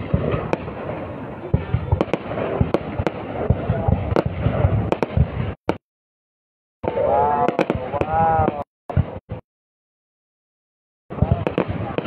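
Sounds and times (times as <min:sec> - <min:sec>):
fireworks bangs: 0:00.0 - 0:05.8, 0:06.8 - 0:09.4, 0:11.1 - 0:12.0
fireworks crackling: 0:00.0 - 0:05.8, 0:06.8 - 0:09.4, 0:11.1 - 0:12.0.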